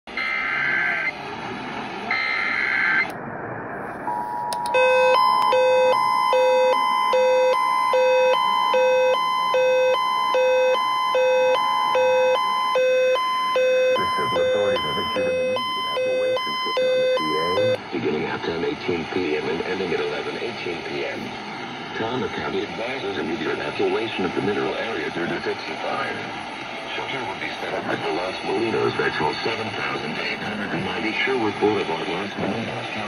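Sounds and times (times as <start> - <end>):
alert radio alarm beeping: 0.2 - 0.8, 2.1 - 3.1, 4.0 - 17.8
buzzy digital header tones: 4.0 - 17.8
two-tone attention signal: 4.1 - 17.8.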